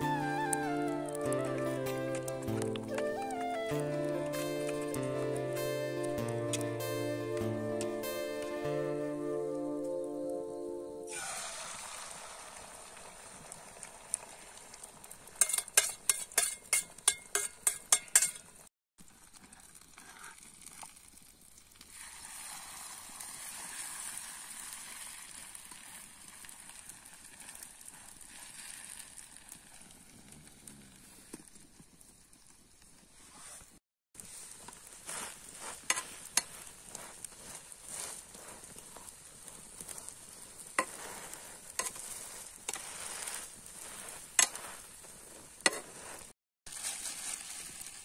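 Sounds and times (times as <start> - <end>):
food sizzling in a pan: 11.1 - 31.1, 34.2 - 48.0.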